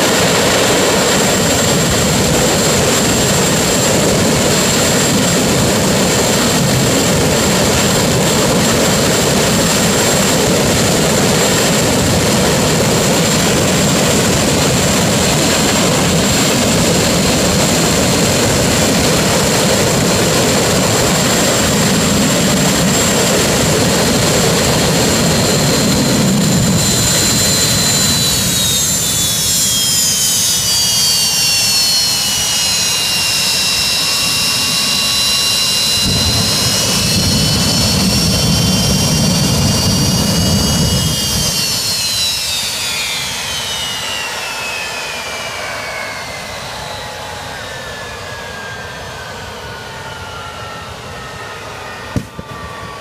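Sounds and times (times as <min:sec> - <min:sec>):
high turbine whine: 0:00.0 - 0:53.0
jet engine roaring: 0:00.0 - 0:53.0.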